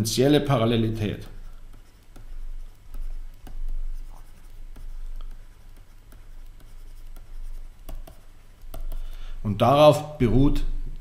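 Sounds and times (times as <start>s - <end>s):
steady low hum: 0.1s - 11.0s
stylus tapping and scratching: 0.6s - 9.7s.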